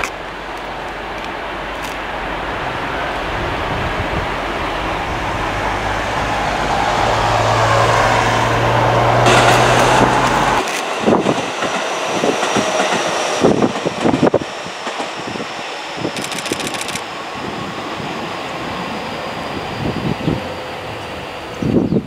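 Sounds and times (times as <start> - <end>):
wind buffeting microphone: 0.0 - 22.0
train wheels clattering over rails: 9.2 - 17.0.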